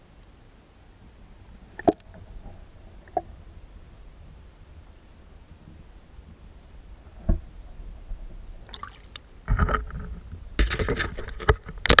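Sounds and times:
water splashing and sloshing: 8.6 - 11.7.

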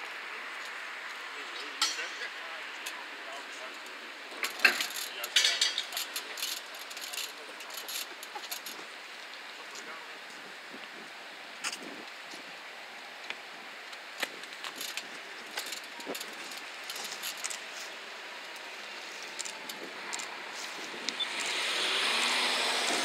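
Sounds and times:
rushing engine sound: 18.6 - 23.0.

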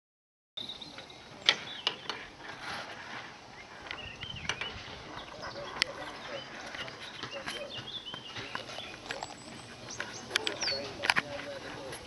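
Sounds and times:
birds chirping: 0.6 - 12.0
sharp clicks and knocks: 1.0 - 2.3.

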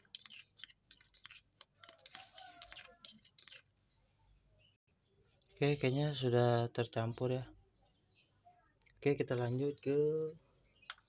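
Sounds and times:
metal spoon scraping paste in cup: 0.0 - 3.9.

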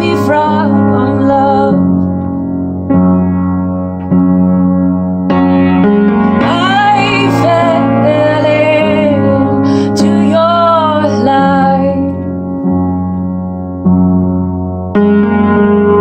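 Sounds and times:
woman singing: 0.0 - 2.0, 6.4 - 12.3
piano chords: 0.0 - 16.0.

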